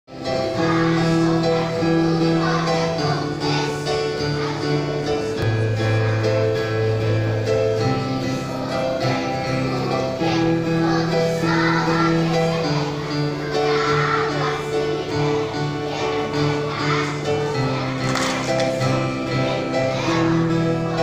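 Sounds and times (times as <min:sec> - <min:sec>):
children's choir singing: 0:00.1 - 0:21.0
piano: 0:00.1 - 0:21.0.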